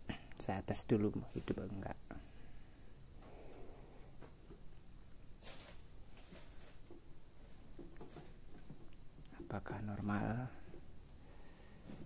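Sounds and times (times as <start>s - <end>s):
insects chirping: 0.0s - 12.0s
cable rustle: 5.4s - 8.6s.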